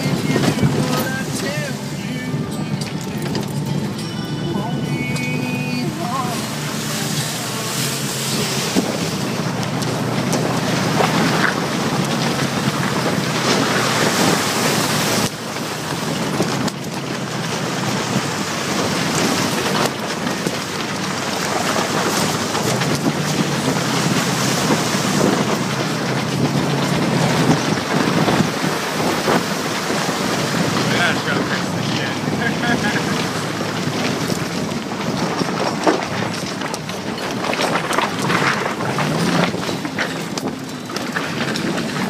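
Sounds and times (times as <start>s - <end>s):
car engine running: 0.0s - 42.0s
muddy water splashing: 0.0s - 42.0s
wind on microphone: 5.8s - 42.0s.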